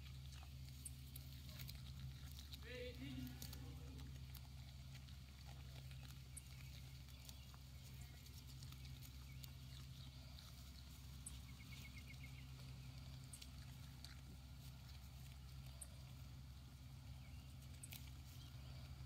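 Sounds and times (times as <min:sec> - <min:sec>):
goats chewing grass: 0:00.0 - 0:19.0
steady low hum: 0:00.0 - 0:19.0.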